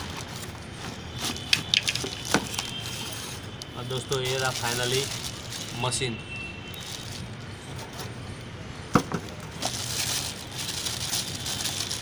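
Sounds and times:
plastic bag crinkling: 0.0s - 7.4s, 9.3s - 12.0s.

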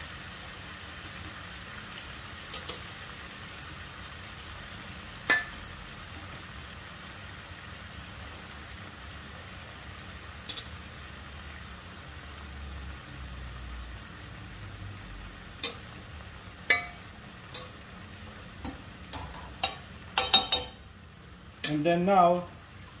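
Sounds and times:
chicken sizzling in a pan: 0.0s - 23.0s
utensil clinking against pan: 15.6s - 15.9s, 16.7s - 17.8s, 18.6s - 20.8s.

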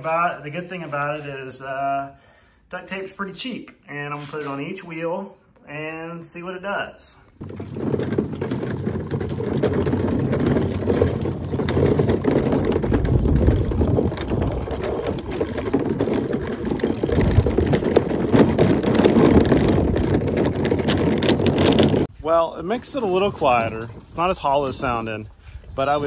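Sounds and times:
plastic wheels rattling on concrete: 7.4s - 22.1s.

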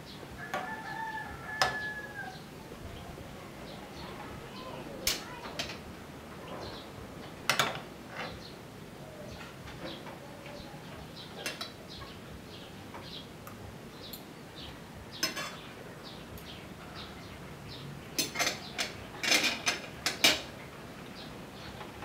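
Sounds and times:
cutlery scraping a ceramic plate: 15.2s - 15.6s, 18.2s - 20.5s.

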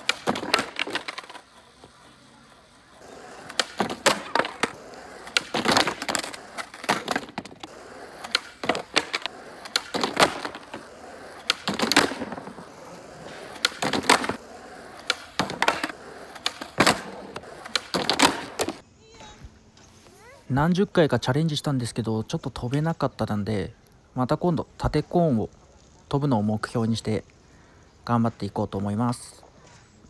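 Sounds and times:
skateboard wooden clacks: 0.0s - 18.8s
skateboard wheels rolling on asphalt: 0.0s - 30.0s.

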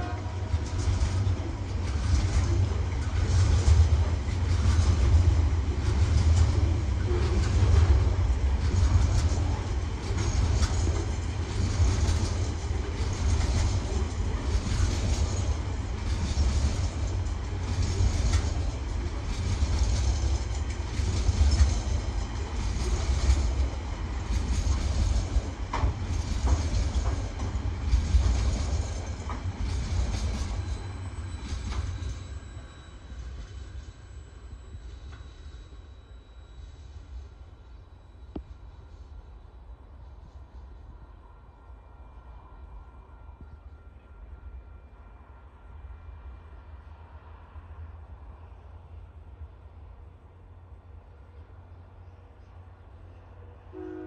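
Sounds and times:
wheels clattering over rail joints: 0.0s - 32.6s
freight train rumbling: 0.0s - 54.0s
thin high squeal: 30.4s - 37.9s.

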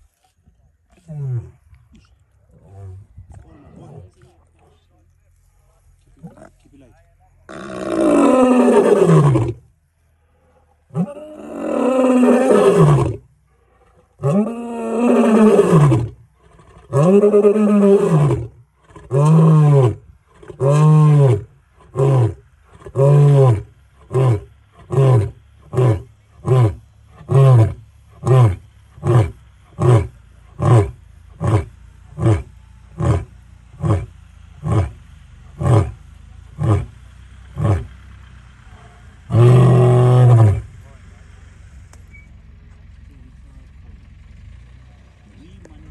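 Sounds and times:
lion roaring: 7.5s - 9.6s, 10.9s - 35.0s, 36.6s - 36.9s, 39.3s - 40.7s.

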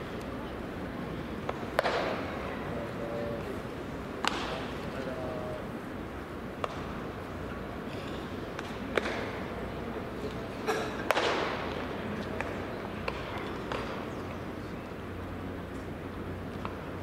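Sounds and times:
background noise: 0.0s - 17.0s
distant voices: 0.0s - 17.0s
bat cracking ball: 1.4s - 2.4s, 4.2s - 4.7s, 8.6s - 9.4s, 10.9s - 14.0s.

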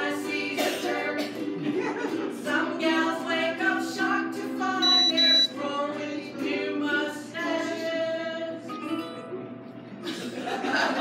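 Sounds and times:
group singing in harmony: 0.0s - 8.7s
ukuleles: 0.0s - 11.0s
shrill high-pitched beep: 4.8s - 5.5s.

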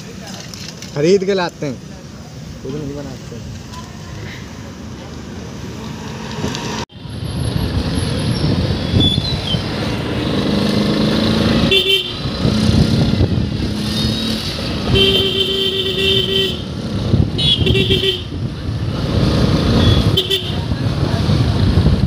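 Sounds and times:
vehicle engines and road noise: 0.0s - 22.0s
vehicle horn honking: 11.6s - 12.2s, 14.9s - 16.7s, 17.4s - 18.4s, 19.8s - 20.6s.

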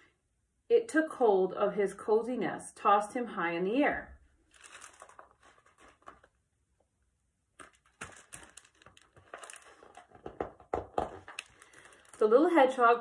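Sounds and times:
book pages turning and rustling: 4.5s - 6.4s, 7.6s - 12.1s.

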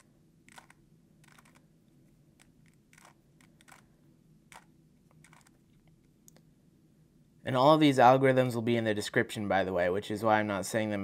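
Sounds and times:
puzzle cube plastic clicks: 0.0s - 1.7s, 2.4s - 3.9s, 4.5s - 6.0s.

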